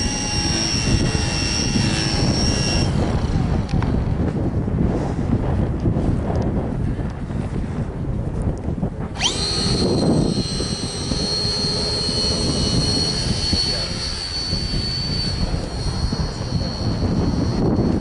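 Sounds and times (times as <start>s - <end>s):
electric motor high whine: 0.0s - 5.2s, 9.0s - 18.0s
wind buffeting microphone: 0.0s - 18.0s.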